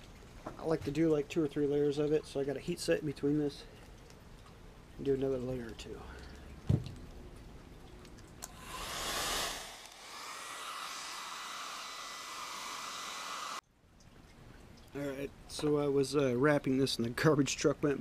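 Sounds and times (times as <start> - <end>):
hair dryer blowing: 8.5 - 13.6.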